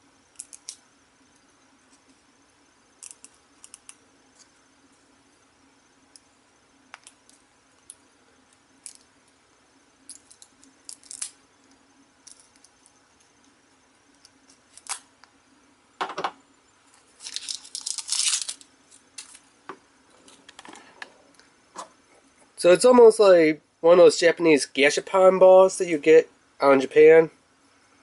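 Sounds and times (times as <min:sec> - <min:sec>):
plastic bag crinkling: 0:17.1 - 0:19.4.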